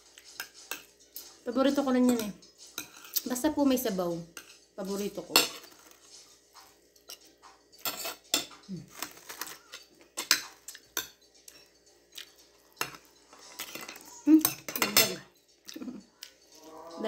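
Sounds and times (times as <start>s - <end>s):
cutlery clinking on a plate: 0.2s - 1.3s, 2.0s - 3.3s, 4.4s - 4.6s, 5.3s - 6.0s, 6.6s - 15.9s.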